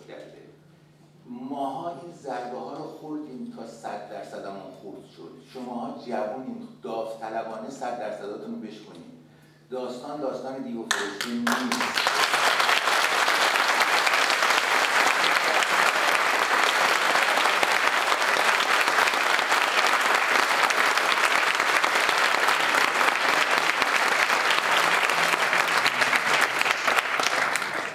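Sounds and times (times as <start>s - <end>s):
audience applauding: 10.9s - 27.9s.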